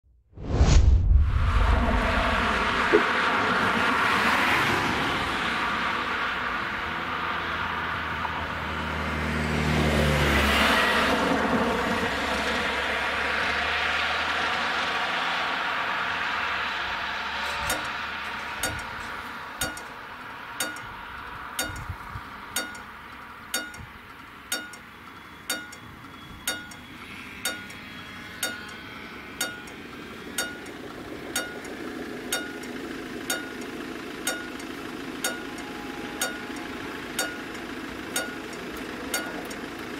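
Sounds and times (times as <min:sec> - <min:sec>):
car driving past: 0:00.4 - 0:22.5
level crossing warning bell: 0:17.4 - 0:39.9.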